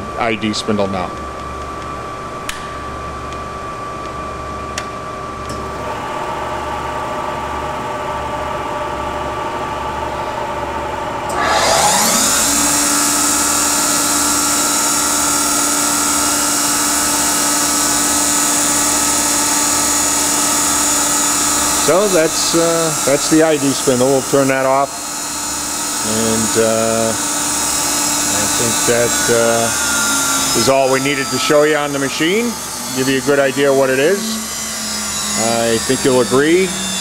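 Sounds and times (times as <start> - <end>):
grinder hum: 10.0 - 37.0
high-pitched grinding spindle whine: 11.3 - 37.0.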